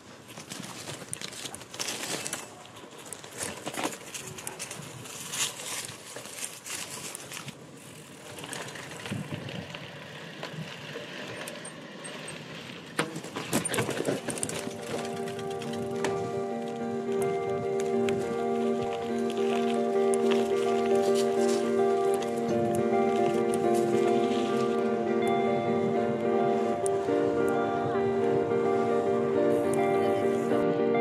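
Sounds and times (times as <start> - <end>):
bike rattling and clicking: 0.0 - 30.6
bike tyres rolling over rough ground: 0.0 - 31.0
music: 14.4 - 31.0.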